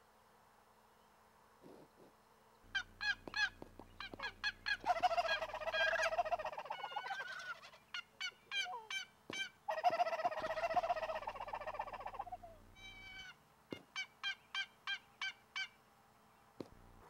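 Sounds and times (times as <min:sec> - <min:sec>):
rapid rattling gobble: 0:02.7 - 0:15.7
turkey call yelps: 0:02.7 - 0:15.8.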